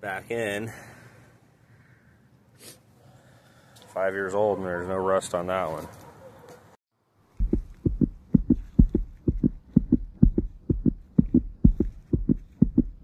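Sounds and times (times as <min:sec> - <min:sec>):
heartbeat thumps: 0:07.4 - 0:13.0.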